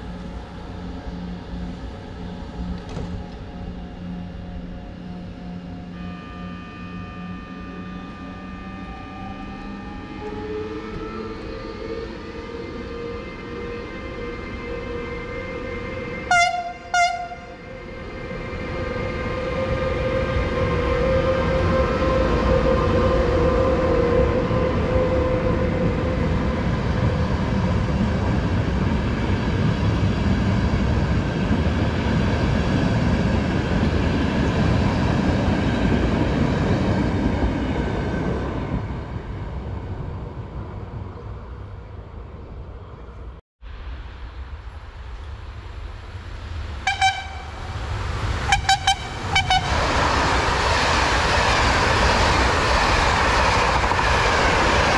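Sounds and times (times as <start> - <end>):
train wheels rumbling on rails: 0.0 - 5.3, 44.1 - 54.9
locomotive horn blasts: 5.9 - 10.4, 16.3 - 17.6, 46.8 - 47.8, 48.4 - 49.8.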